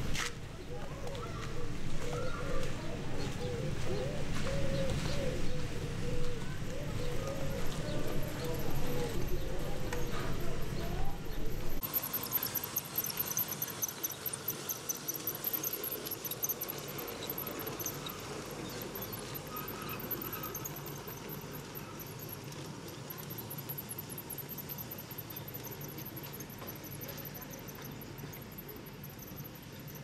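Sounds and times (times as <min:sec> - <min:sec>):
model train motor hum: 0:04.5 - 0:30.0.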